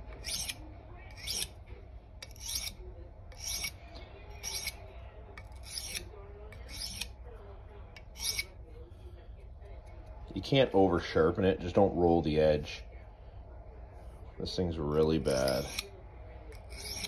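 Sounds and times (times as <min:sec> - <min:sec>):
knife rasping on sharpening stone: 0:00.0 - 0:01.6, 0:02.2 - 0:04.8, 0:05.4 - 0:07.2, 0:08.0 - 0:08.6, 0:15.0 - 0:15.9, 0:16.5 - 0:17.0.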